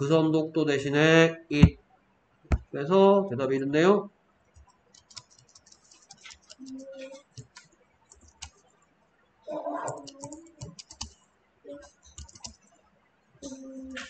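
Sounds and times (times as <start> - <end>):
person speaking: 5.8 - 7.6, 9.5 - 11.1, 13.4 - 14.0.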